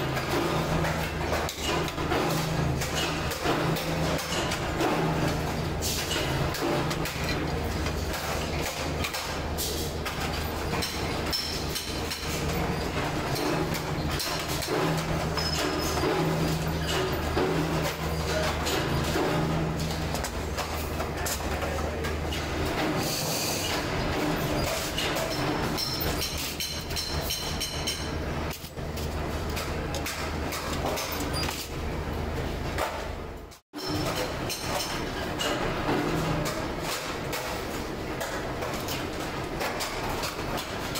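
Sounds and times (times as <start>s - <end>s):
welding machine electrical hum: 0.0s - 40.9s.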